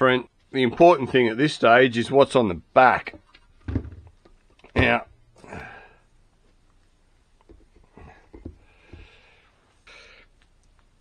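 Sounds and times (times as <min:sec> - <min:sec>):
parts knocking on workbench: 0:03.1 - 0:04.2, 0:07.5 - 0:09.1.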